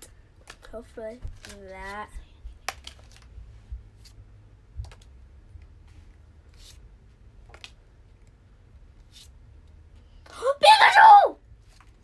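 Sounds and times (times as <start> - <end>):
cards swishing: 5.7 - 7.8, 9.0 - 9.4.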